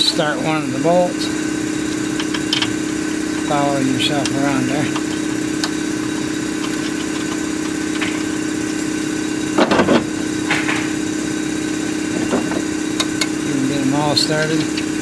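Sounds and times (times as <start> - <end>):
machine hum: 0.0 - 15.0
metallic rattle: 4.2 - 8.8.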